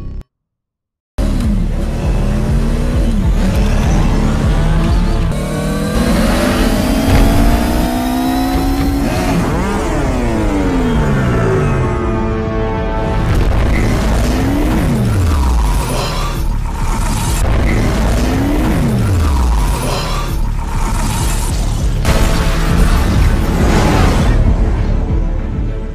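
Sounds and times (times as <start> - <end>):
electronic engine whines: 1.2 - 12.2
engine swooping past: 1.9 - 12.2
deep low rumble: 6.8 - 10.8.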